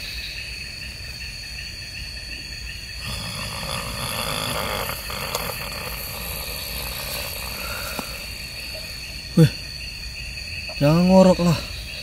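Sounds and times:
night insects trilling: 0:00.0 - 0:12.0
person snoring: 0:03.0 - 0:09.5.

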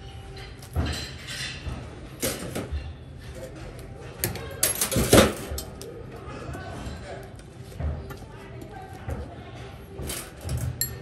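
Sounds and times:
wire rack clinking and rattling: 0:00.3 - 0:05.9, 0:10.0 - 0:11.0.

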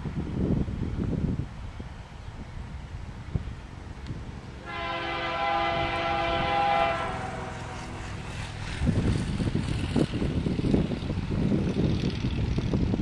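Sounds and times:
locomotive air horn chord: 0:04.6 - 0:08.6.

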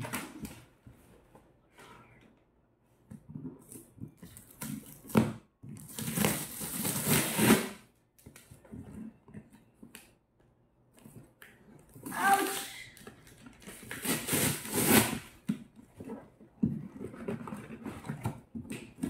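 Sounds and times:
cardboard box tearing: 0:05.9 - 0:07.8, 0:13.9 - 0:15.3.

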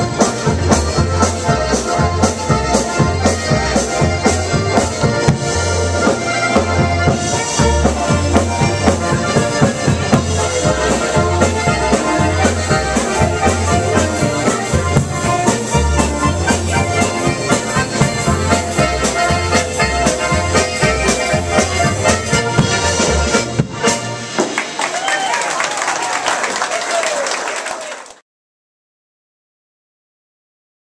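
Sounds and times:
steady bass line: 0:00.0 - 0:24.4
diatonic button accordions: 0:00.0 - 0:24.6
piano accordion: 0:00.0 - 0:24.6
drum beat: 0:00.0 - 0:25.0.

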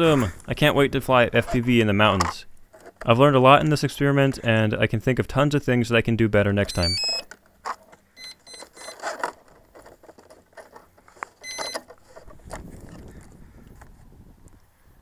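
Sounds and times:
clicks and knocks from handling: 0:06.7 - 0:13.9.

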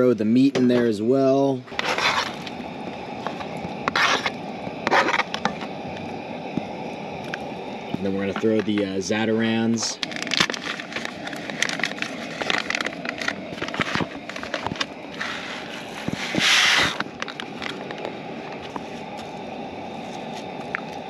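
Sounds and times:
spatula scraping: 0:01.7 - 0:02.4, 0:03.8 - 0:05.5
packet crinkling: 0:10.0 - 0:14.9.

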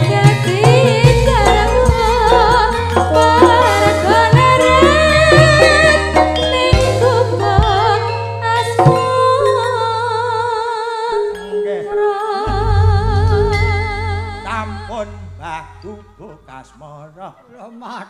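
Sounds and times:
band playing live: 0:00.0 - 0:10.2, 0:12.4 - 0:16.6
person singing with vibrato: 0:00.0 - 0:16.7.

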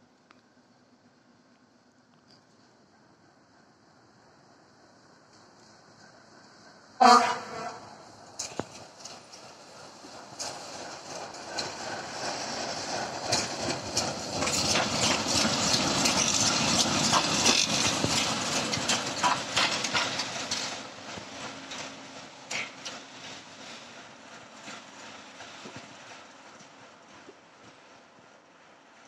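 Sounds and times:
diesel locomotive engine running: 0:00.0 - 0:29.0
wheels knocking on rail joints: 0:07.1 - 0:27.9
wheels rolling over rails: 0:08.3 - 0:23.7.

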